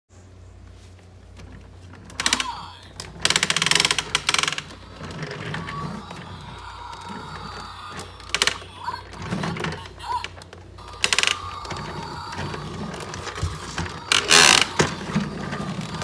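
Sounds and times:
toy vacuum buzzing rattle: 0:10.8 - 0:16.0.

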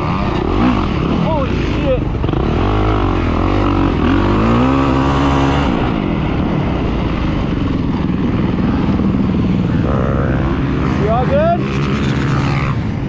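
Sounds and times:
motocross engine revving: 0:00.0 - 0:07.0, 0:08.4 - 0:13.0.

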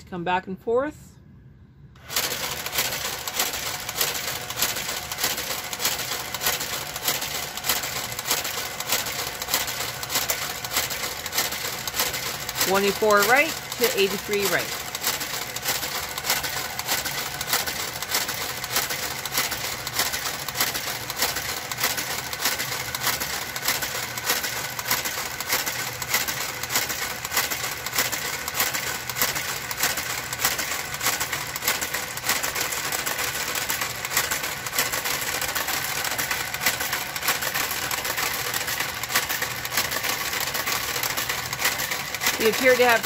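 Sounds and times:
motor hum: 0:01.4 - 0:43.0
knitting machine carriage clacking: 0:02.0 - 0:43.0.

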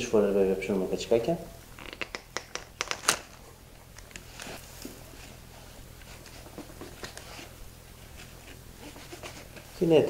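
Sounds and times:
twine rustling: 0:02.9 - 0:10.0.

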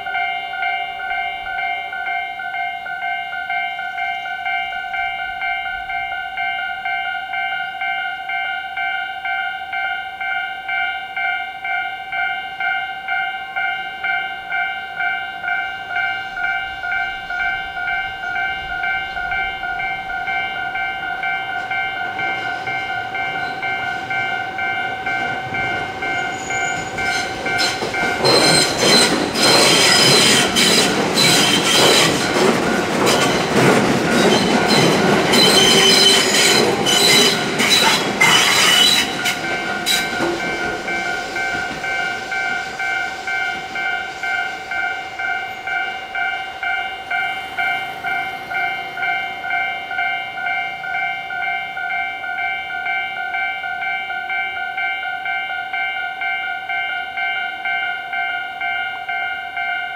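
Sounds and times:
level crossing alarm bell: 0:00.0 - 0:59.9
train passing: 0:00.0 - 0:59.9
train wheels knocking: 0:19.0 - 0:50.7.

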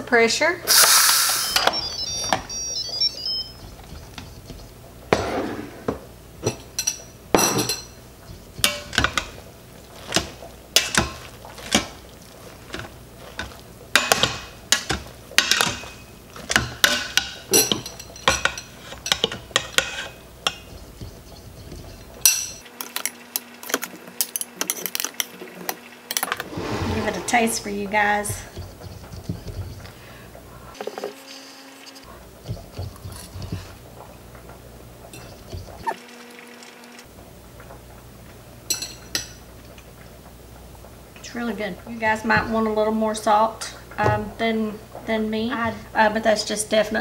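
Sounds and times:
steam hissing from valve: 0:00.7 - 0:01.6.

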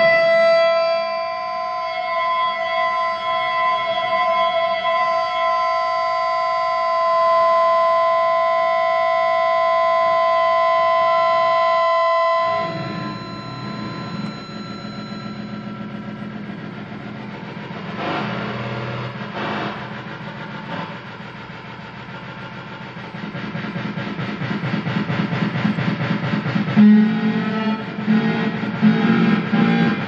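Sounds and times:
high electronic feedback tones: 0:00.0 - 0:30.0
bright noisy swell: 0:12.3 - 0:30.0
low rough fluttering drone: 0:12.5 - 0:30.0.

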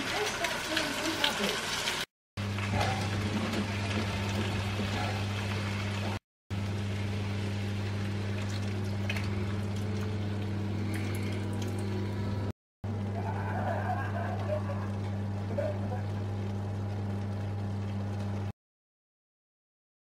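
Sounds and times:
meat sizzling in a frying pan: 0:00.0 - 0:02.1.

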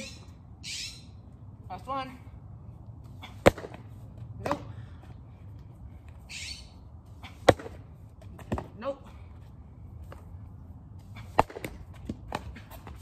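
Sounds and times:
bird squawk: 0:00.0 - 0:01.2, 0:06.3 - 0:06.8
baseball hitting glove: 0:03.4 - 0:03.8, 0:07.4 - 0:07.8, 0:11.3 - 0:12.6.

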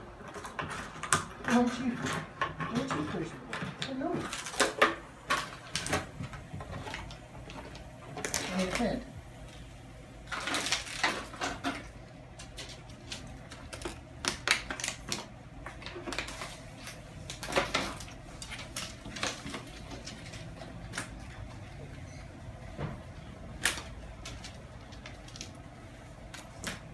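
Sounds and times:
puppy paws clicking and rustling: 0:10.3 - 0:22.2.

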